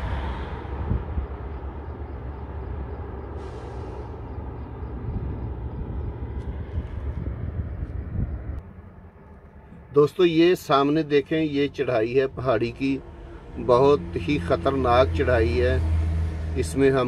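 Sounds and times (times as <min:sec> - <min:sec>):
wind on microphone: 0:00.0 - 0:01.6, 0:04.8 - 0:08.6
highway traffic rumble: 0:00.0 - 0:17.0.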